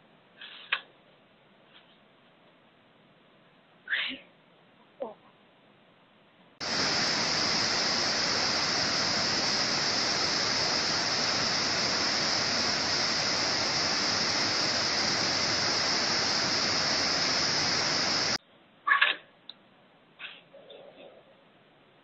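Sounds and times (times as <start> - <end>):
river rushing over rapids: 6.6 - 18.4.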